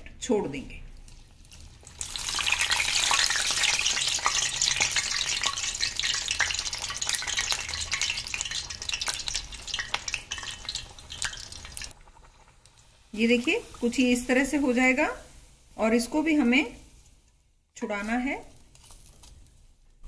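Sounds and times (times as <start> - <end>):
fritter deep-frying in hot oil: 0.2 - 17.2.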